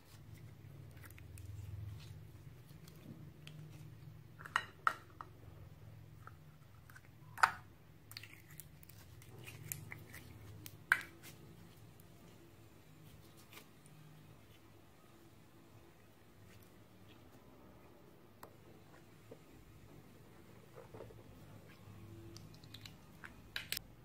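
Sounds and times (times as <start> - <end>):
low steady hum: 0.0 - 24.0
slime crackling sticky: 8.0 - 12.4.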